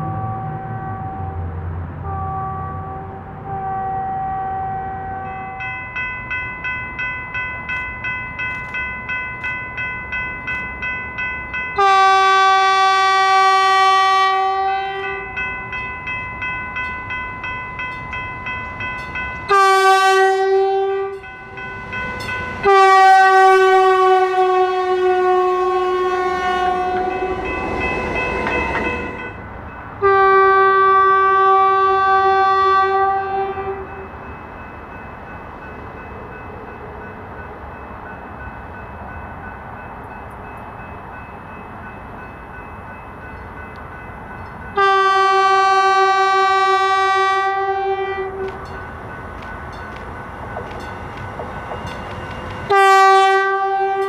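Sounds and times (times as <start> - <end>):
train horn blasts: 0.0 - 5.6, 11.8 - 15.5, 19.5 - 21.3, 22.1 - 29.4, 30.0 - 34.1, 44.8 - 48.7, 52.7 - 54.0
train running noise: 0.0 - 54.0.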